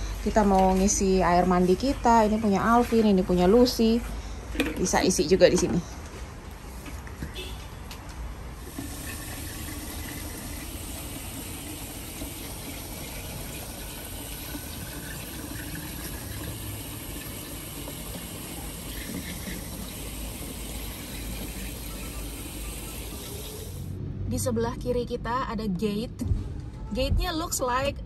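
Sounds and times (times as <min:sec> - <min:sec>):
tap water filling plastic jug: 0:08.6 - 0:23.7.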